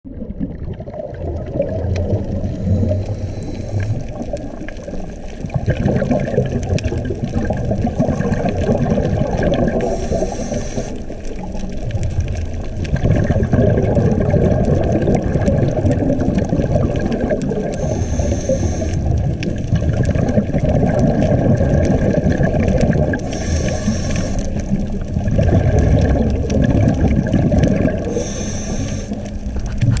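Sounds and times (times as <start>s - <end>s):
bubbling exhale underwater: 0.1s - 30.0s
regulator inhale hisses: 2.4s - 4.2s, 9.8s - 11.2s, 17.7s - 19.2s, 23.2s - 24.7s, 28.0s - 29.3s.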